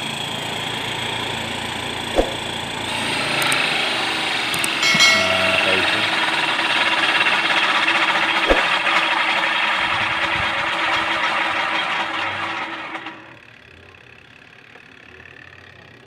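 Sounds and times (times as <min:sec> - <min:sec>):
spin dryer whirring: 0:06.0 - 0:13.2.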